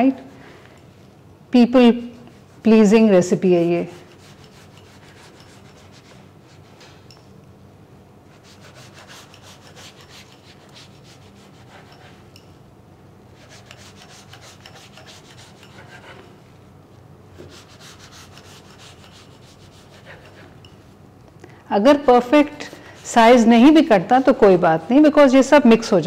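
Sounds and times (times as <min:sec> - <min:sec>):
knife sawing through pastry sheets: 0:03.8 - 0:06.8, 0:08.3 - 0:12.3, 0:13.4 - 0:16.4, 0:17.4 - 0:20.6.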